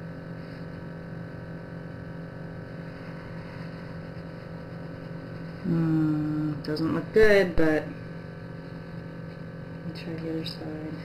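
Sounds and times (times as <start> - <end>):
low electrical hum: 0.0 - 11.0
person speaking: 5.6 - 7.9.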